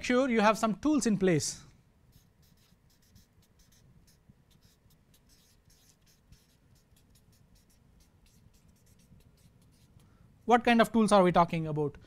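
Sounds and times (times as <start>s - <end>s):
marker pen writing on paper: 2.1s - 10.2s.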